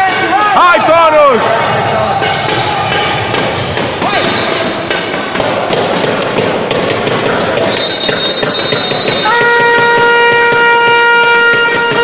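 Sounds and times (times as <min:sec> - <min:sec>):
crowd noise: 0:00.0 - 0:12.0
high whistle: 0:07.7 - 0:12.0.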